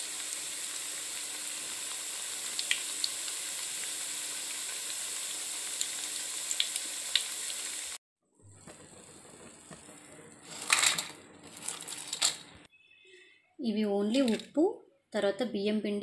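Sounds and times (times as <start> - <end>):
oil sizzling with small pops: 0.0 - 12.6
crisps clattering onto steel plate: 10.5 - 12.5.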